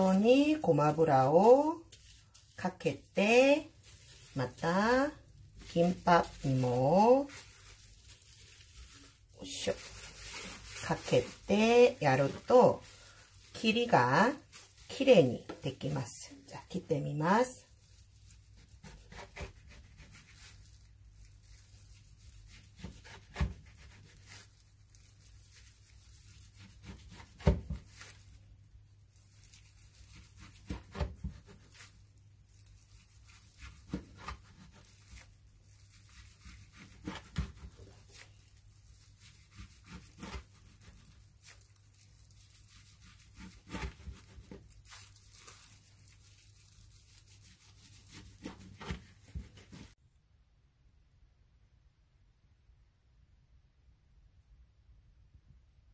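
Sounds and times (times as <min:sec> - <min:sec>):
knife slicing through seaweed rolls: 0:17.9 - 0:28.4, 0:29.2 - 0:50.0.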